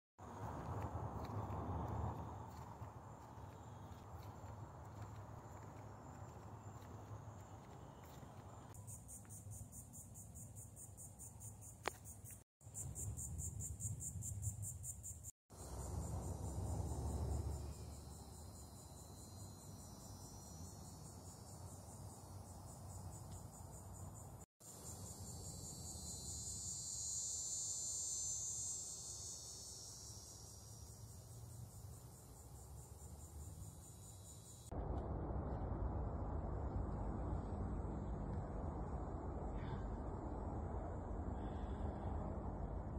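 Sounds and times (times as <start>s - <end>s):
insect trill: 0.3s - 34.7s
low rumble: 34.8s - 42.9s.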